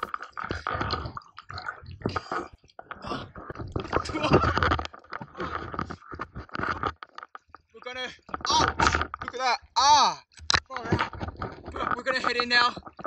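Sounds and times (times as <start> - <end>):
sea water splashing: 0.0 - 9.2.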